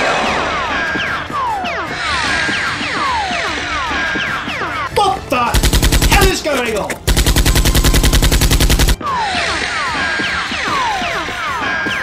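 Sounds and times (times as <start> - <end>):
automatic gunfire bursts: 5.5 - 9.0.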